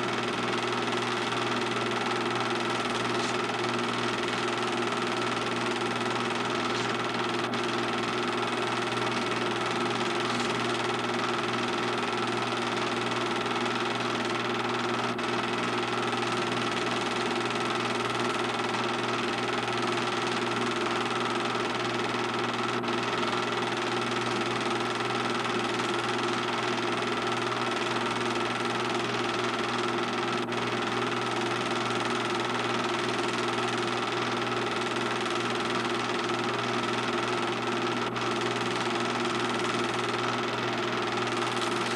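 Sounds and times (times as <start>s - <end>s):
film projector running: 0.0s - 41.9s.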